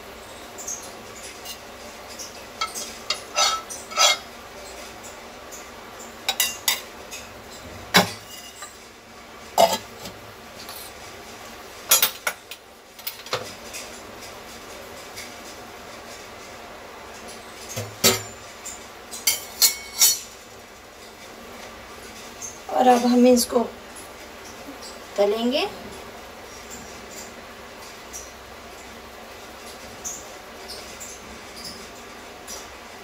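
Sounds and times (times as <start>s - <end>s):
metal spoon and containers clinking: 2.2s - 4.3s, 9.6s - 10.8s, 17.8s - 20.3s.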